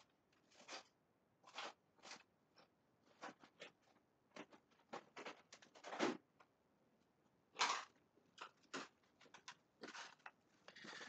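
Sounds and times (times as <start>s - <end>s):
small objects clicking and tapping: 7.6s - 11.0s.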